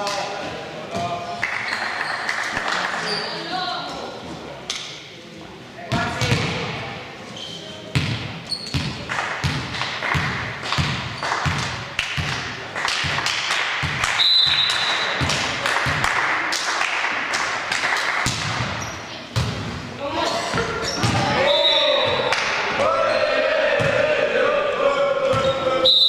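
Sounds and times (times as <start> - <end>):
basketball dribbling on gym floor: 7.9 - 12.4.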